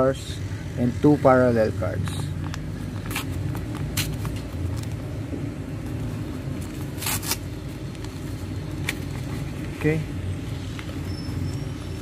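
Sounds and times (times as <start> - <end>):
steady low rumble: 0.0 - 12.0
paper envelope tearing: 6.6 - 8.1.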